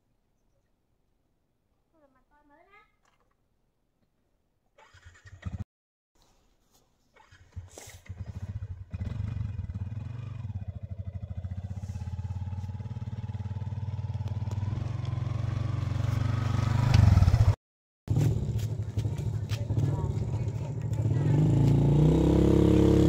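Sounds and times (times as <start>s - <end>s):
small motorbike engine: 4.8s - 5.6s, 7.2s - 23.0s.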